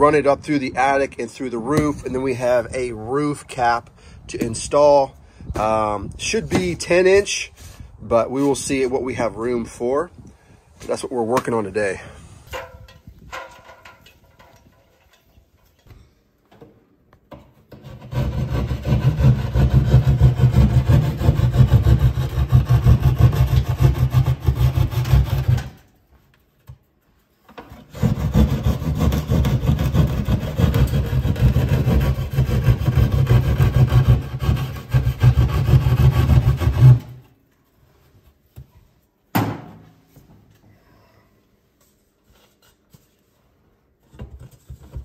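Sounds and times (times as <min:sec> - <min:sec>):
jab saw cutting drywall: 0:17.7 - 0:25.8, 0:27.7 - 0:37.3.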